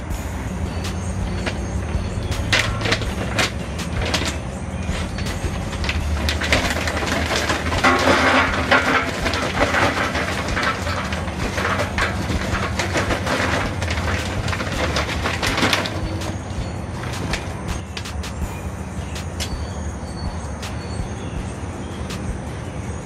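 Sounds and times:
charcoal briquettes clattering: 0.0 - 19.8
paper bag rustling: 0.9 - 18.4.

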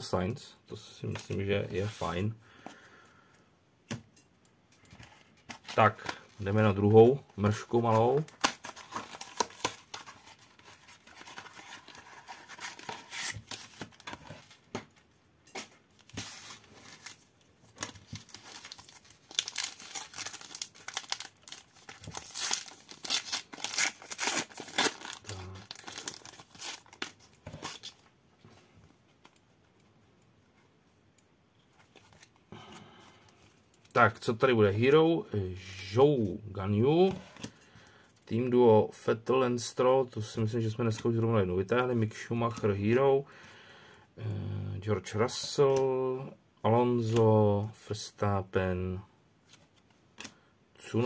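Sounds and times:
card pack wrapper tearing: 8.1 - 14.6, 17.8 - 28.0.

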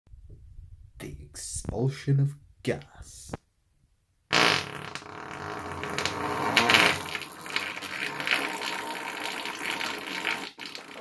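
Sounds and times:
sputtering fart: 4.3 - 11.0.

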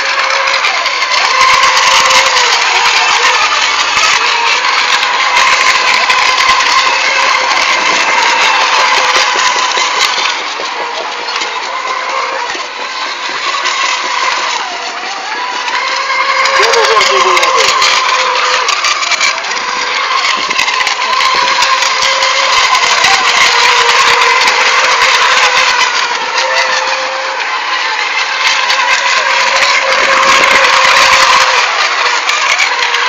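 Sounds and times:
racing boat motor whine: 0.0 - 33.0.

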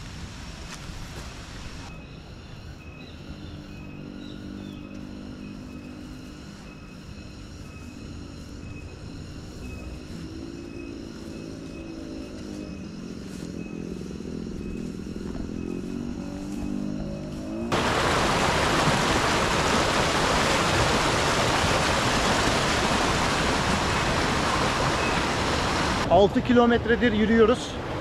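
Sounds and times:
motorcycle engine running: 9.9 - 17.8.

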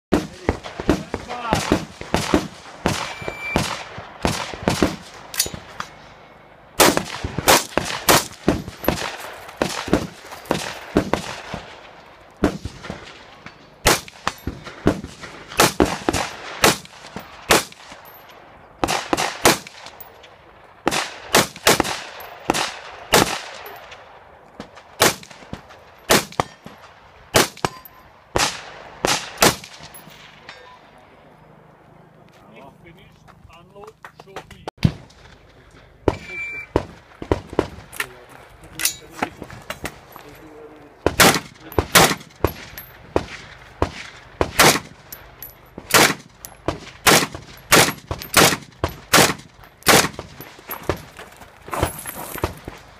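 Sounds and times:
rapid rifle fire: 0.1 - 5.1, 6.8 - 13.2, 13.8 - 17.9, 20.9 - 23.7, 41.1 - 45.1, 45.9 - 50.4
bullet ringing on steel target: 27.6 - 28.1.

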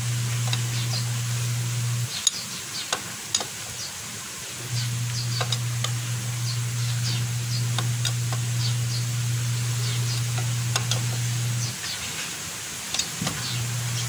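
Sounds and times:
steady low hum: 0.0 - 2.2, 4.5 - 11.8, 12.8 - 14.0
socket wrench metal clicks: 2.2 - 3.6, 12.9 - 13.4.

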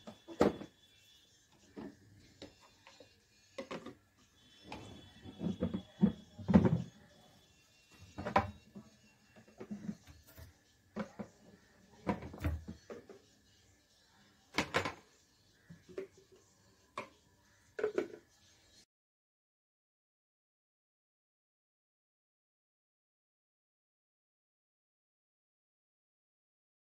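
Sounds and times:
hard plastic clunks and knocks: 5.2 - 6.9.

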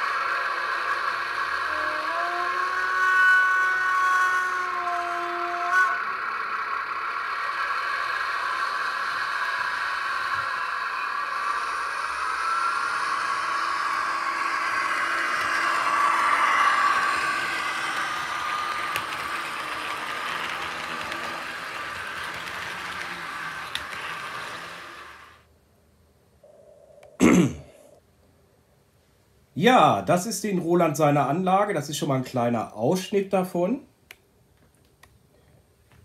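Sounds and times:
model trains running on track: 0.0 - 25.5.

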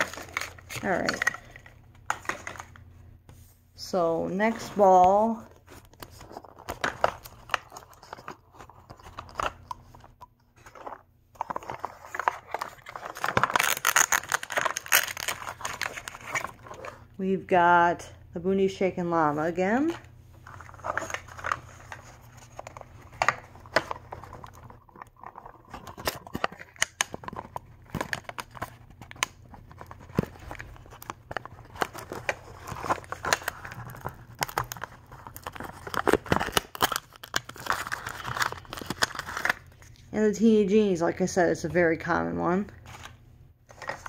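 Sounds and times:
plastic wrappers crinkling and tearing: 0.0 - 2.8, 5.4 - 17.0, 20.4 - 40.0.

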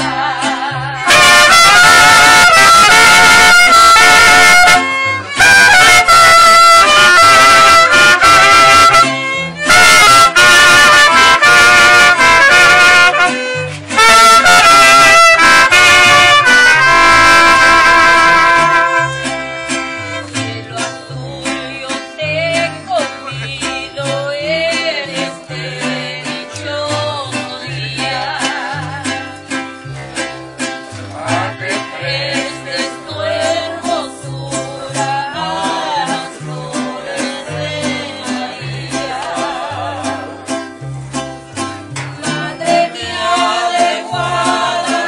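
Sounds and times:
strummed guitars: 0.0 - 45.0
violin: 0.0 - 45.0
trumpet melody: 1.0 - 20.3.

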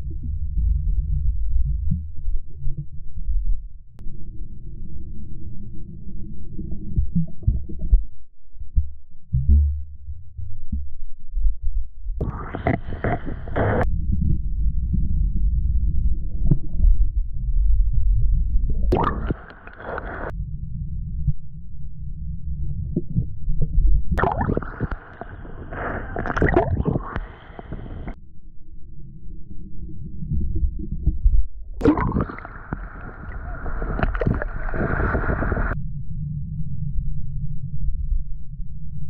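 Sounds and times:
muffled underwater rumble: 0.0 - 39.0
waves splashing: 18.9 - 20.3, 24.2 - 28.2, 31.8 - 35.8.

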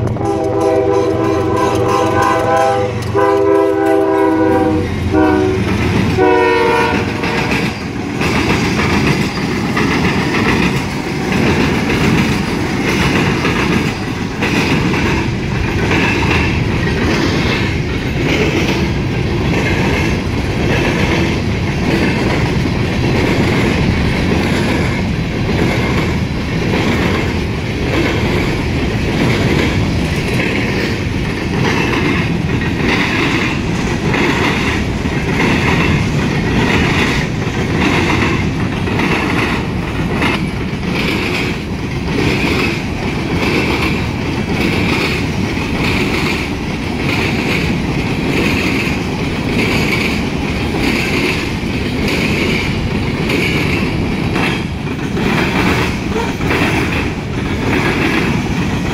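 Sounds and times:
freight train rumbling and rattling: 0.0 - 58.9
wheels clacking over rail joints: 0.0 - 58.9
train air horn: 0.1 - 7.7.

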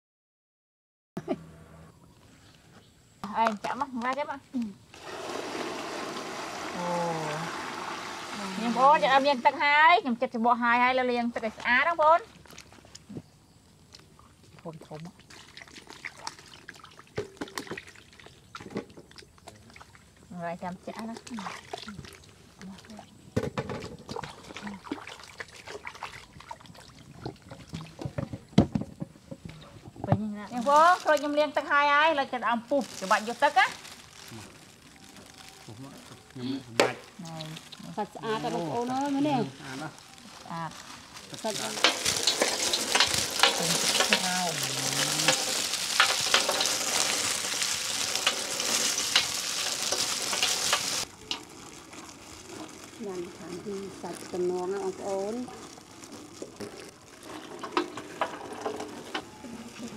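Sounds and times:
water pouring and trickling: 4.9 - 9.6, 13.9 - 28.5, 32.8 - 36.4, 37.0 - 59.9
oranges squeezed wet crackling: 13.8 - 20.2, 20.9 - 23.0, 24.0 - 28.1, 32.8 - 58.2
fruit and containers clattering: 17.1 - 19.7, 20.9 - 26.4, 27.0 - 31.7, 36.1 - 59.9.

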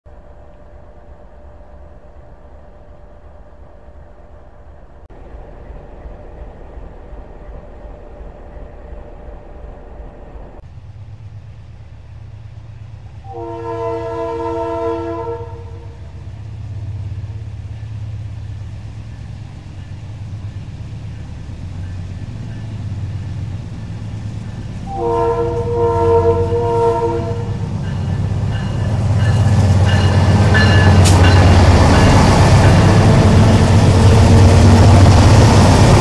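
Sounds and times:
diesel locomotive rumble: 0.1 - 36.0
locomotive air horn: 13.2 - 16.0, 24.8 - 28.0.

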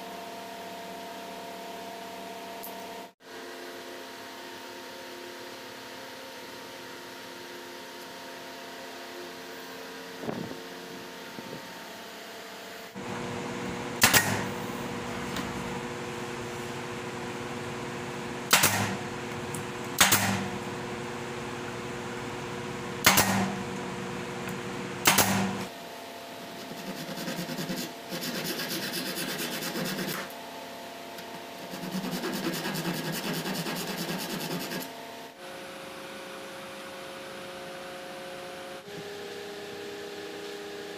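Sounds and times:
workshop hum: 0.0 - 40.9
steel blade rubbing on wood: 31.6 - 34.9.

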